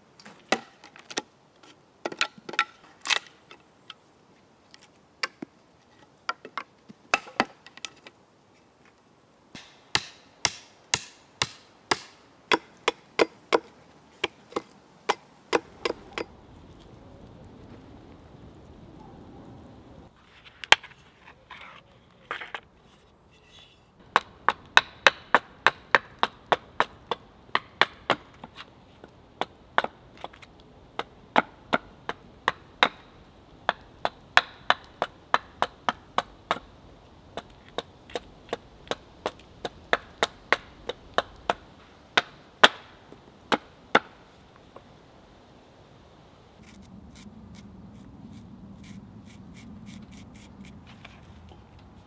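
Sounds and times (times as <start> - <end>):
hatchet chopping wood: 0.5 - 0.8, 6.5 - 7.6, 9.6 - 16.3, 24.1 - 28.5, 33.7 - 36.7, 37.4 - 41.6, 42.2 - 42.9.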